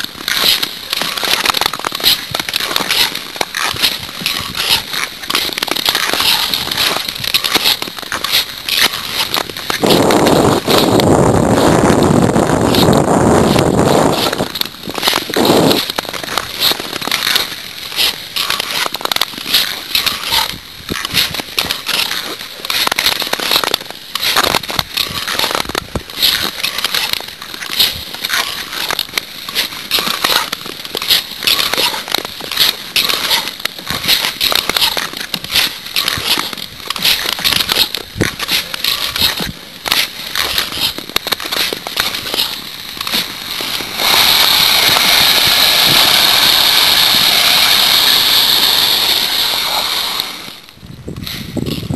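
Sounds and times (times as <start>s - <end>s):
crackling clicks and scrapes: 0.0s - 51.9s
ice skates gliding on ice: 0.0s - 51.9s.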